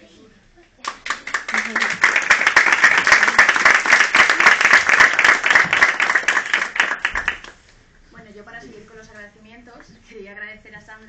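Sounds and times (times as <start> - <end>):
audience applauding: 0.9 - 7.6.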